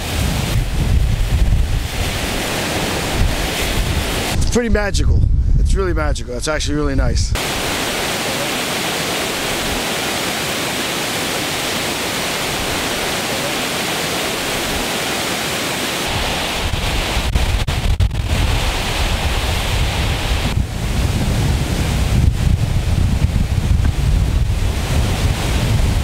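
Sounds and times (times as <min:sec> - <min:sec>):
waterfall rushing over rock: 0:00.0 - 0:04.4, 0:07.4 - 0:26.0
wind buffeting microphone: 0:00.0 - 0:07.4, 0:16.1 - 0:26.0.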